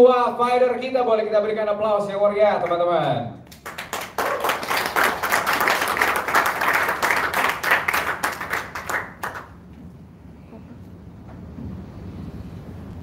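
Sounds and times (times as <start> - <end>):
audience clapping: 3.5 - 9.6.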